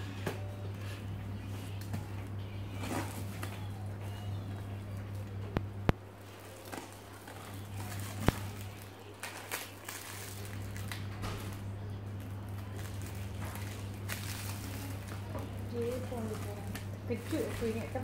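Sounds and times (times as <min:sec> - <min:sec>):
low electrical hum: 0:00.0 - 0:18.0
plastic wrap crinkling: 0:06.2 - 0:18.0.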